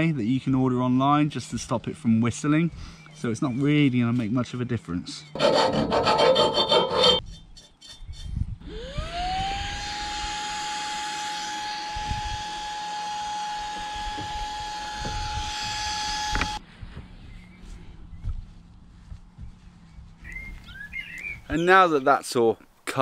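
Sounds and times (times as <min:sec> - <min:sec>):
scratchy rubbing noise: 0:05.4 - 0:07.2
handheld vacuum cleaner whine: 0:08.7 - 0:16.6.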